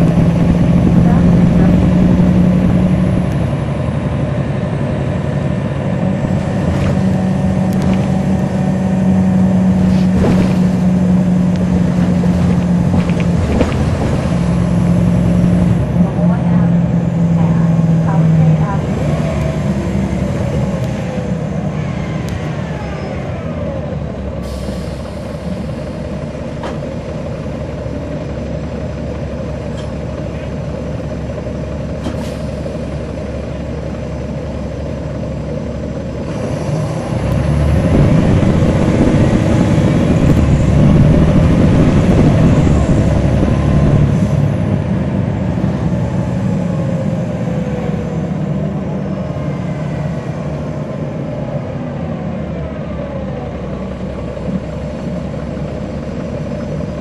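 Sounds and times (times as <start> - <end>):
bus diesel engine drone: 0.0 - 57.0.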